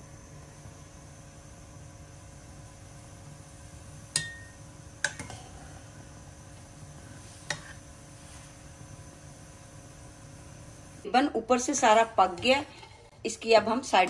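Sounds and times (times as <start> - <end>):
spoon clinking against metal pot: 4.1 - 5.4.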